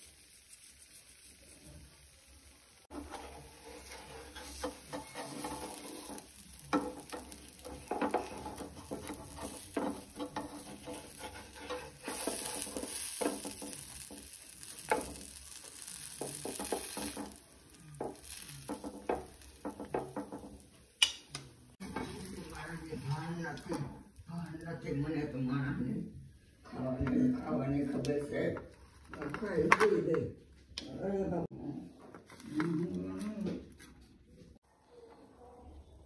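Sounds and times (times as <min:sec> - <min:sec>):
batter sizzling in a pan: 0:00.0 - 0:26.2
spatula scraping and tapping pan: 0:02.9 - 0:23.9.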